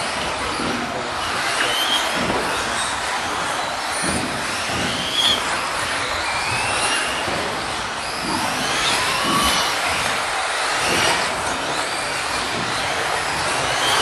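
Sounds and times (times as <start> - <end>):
rc car motors whining: 0.0 - 14.0.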